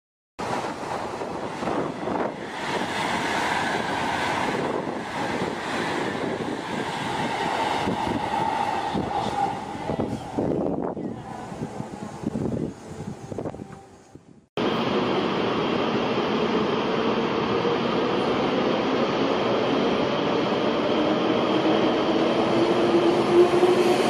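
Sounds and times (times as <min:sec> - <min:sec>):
train rushing past: 0:00.4 - 0:13.9, 0:14.6 - 0:24.0
wind on microphone: 0:00.4 - 0:14.5.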